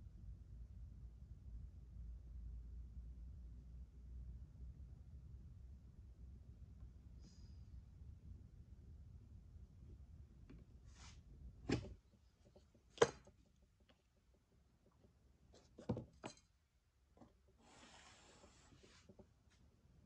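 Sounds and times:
rubbing sound: 0:17.6 - 0:19.2.

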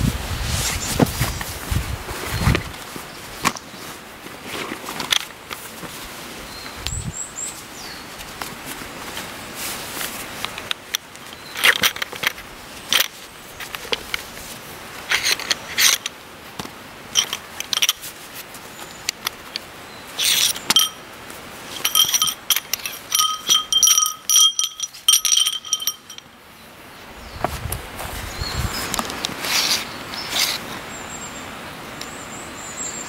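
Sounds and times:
canvas rustling and scraping: 0:00.0 - 0:06.6, 0:07.4 - 0:16.0, 0:27.4 - 0:30.8
metal tent poles clinking: 0:10.4 - 0:14.3, 0:15.0 - 0:16.2, 0:17.1 - 0:18.2, 0:20.2 - 0:26.4.

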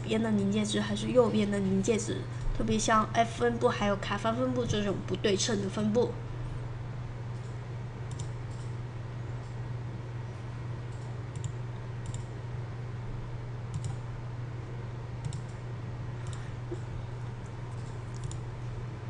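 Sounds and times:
low electrical hum: 0:00.0 - 0:19.0
computer mouse clicking: 0:07.3 - 0:08.7, 0:10.9 - 0:12.3, 0:13.7 - 0:14.0, 0:15.2 - 0:15.6, 0:16.2 - 0:16.8, 0:17.7 - 0:18.5.

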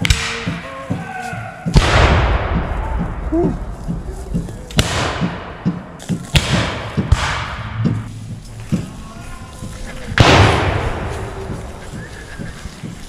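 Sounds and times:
musket shots: 0:01.7 - 0:03.2, 0:04.7 - 0:05.6, 0:06.3 - 0:07.7, 0:10.2 - 0:11.1.

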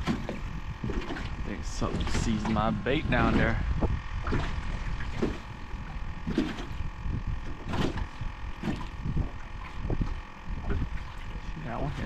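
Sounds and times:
electric motor whine: 0:00.0 - 0:12.0
water splashing against hull: 0:00.0 - 0:12.0
wind rumbling on microphone: 0:00.0 - 0:12.0.

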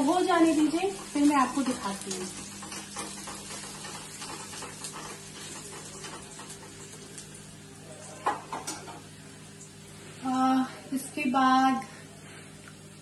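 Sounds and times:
onions sizzling in oil: 0:00.0 - 0:11.8
spoon knocking on pan: 0:08.2 - 0:09.0.

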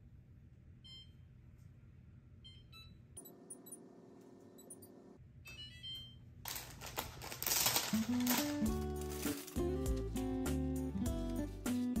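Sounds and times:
loud rustling: 0:06.5 - 0:10.2.

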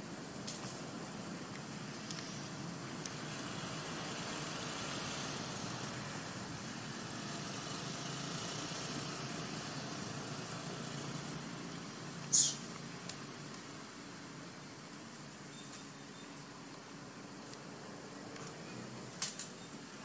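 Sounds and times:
faint hiss: 0:00.0 - 0:20.0
low engine-like hum: 0:00.0 - 0:20.0.

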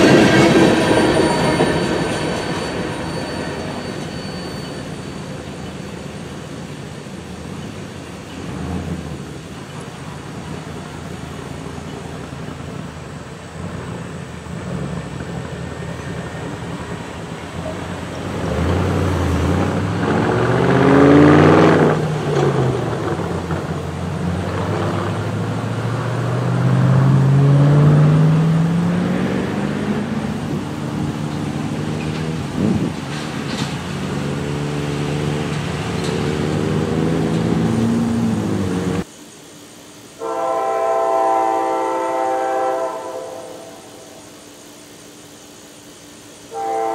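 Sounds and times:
cars crossing railroad crossing: 0:00.0 - 0:39.1
car engines accelerating: 0:18.2 - 0:39.1.

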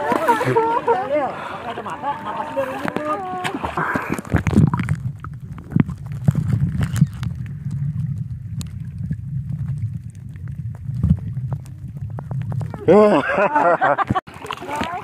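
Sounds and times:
underwater rumble of moving water: 0:00.0 - 0:15.0
underwater clicks and ticks: 0:02.8 - 0:12.9, 0:14.0 - 0:15.0.

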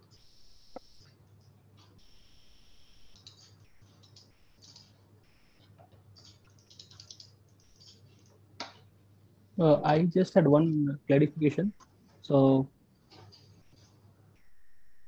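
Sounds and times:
computer keys clicking: 0:05.6 - 0:08.0.

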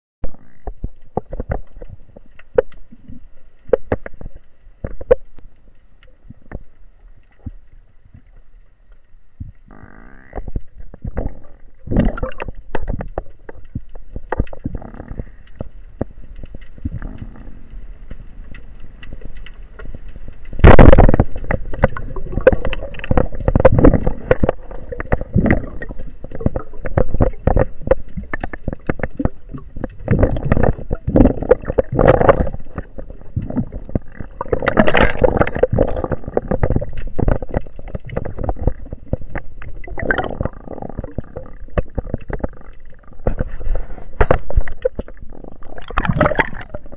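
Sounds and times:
clicks and knocks underwater: 0:00.2 - 0:46.9
water gurgling: 0:00.2 - 0:46.9
speargun firing underwater: 0:20.6 - 0:25.8.

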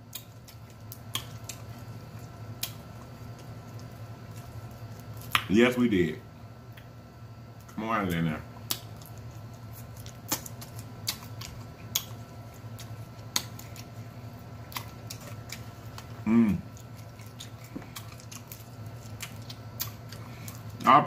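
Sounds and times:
low steady hum: 0:00.0 - 0:21.0
crab shells cracking: 0:00.1 - 0:05.5, 0:08.6 - 0:14.0, 0:14.6 - 0:20.8
person humming: 0:16.2 - 0:16.7.

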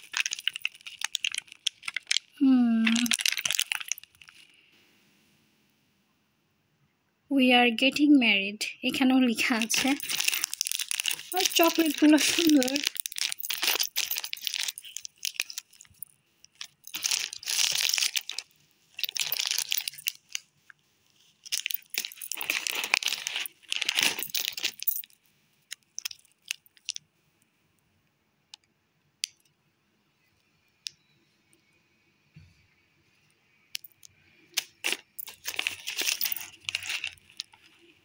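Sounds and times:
sweet wrappers crinkling: 0:00.0 - 0:04.6, 0:09.4 - 0:20.5, 0:21.2 - 0:25.1, 0:25.7 - 0:27.0, 0:33.8 - 0:38.0.

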